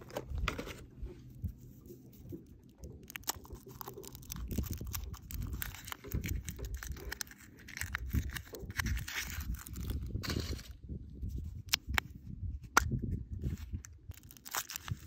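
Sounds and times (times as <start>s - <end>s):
wind rumble on microphone: 0.1s - 15.0s
foil wrapper crinkling and tearing: 2.2s - 10.8s, 13.5s - 15.0s.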